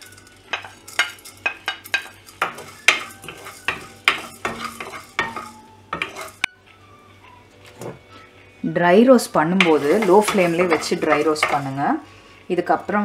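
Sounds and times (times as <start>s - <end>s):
seeds rattling in pan: 0.0s - 6.4s, 9.6s - 11.8s
wooden spatula scraping pan: 0.1s - 6.4s, 9.6s - 12.0s.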